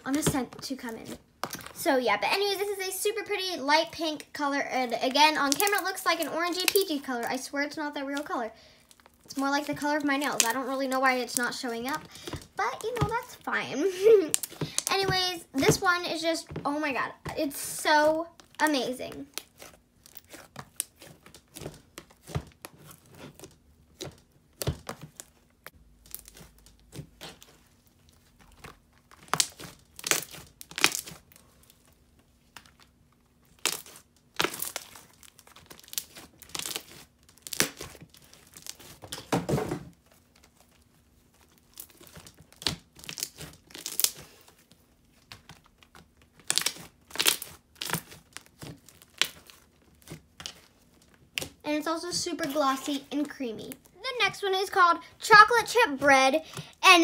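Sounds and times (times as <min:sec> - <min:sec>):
slime squished by hand: 0:18.4 - 0:39.2, 0:40.0 - 0:51.6.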